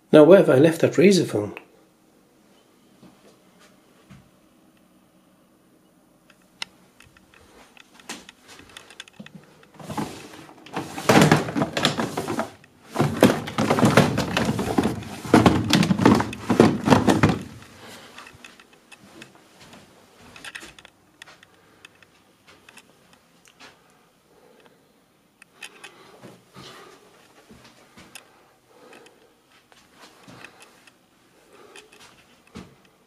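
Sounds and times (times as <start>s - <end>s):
rummaging clatter: 7.4s - 21.0s
plastic drawers opening and shutting: 9.7s - 18.5s.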